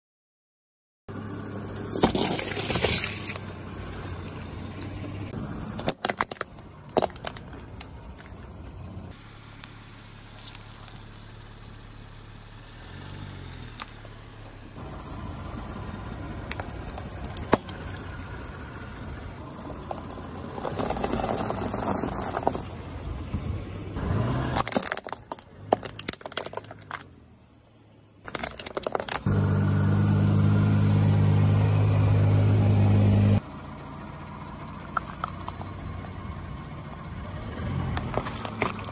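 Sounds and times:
candy eggs crunching under tyre: 1.9s - 3.4s, 5.8s - 8.3s, 10.3s - 11.4s, 16.4s - 18.1s, 19.4s - 22.8s, 24.4s - 27.1s, 28.3s - 29.3s, 37.9s - 38.9s
tyre rolling on gravelly asphalt: 14.8s - 23.4s, 37.4s - 38.9s
sharp cracks: 16.4s - 18.2s, 24.4s - 27.1s, 28.2s - 29.3s.

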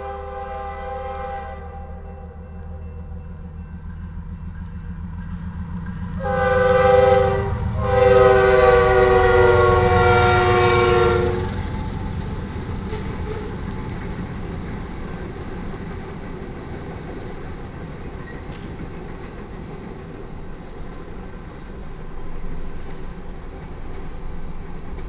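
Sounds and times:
locomotive air horn blasts: 0.0s - 2.4s, 6.2s - 11.6s
freight train rumbling: 0.0s - 25.0s.

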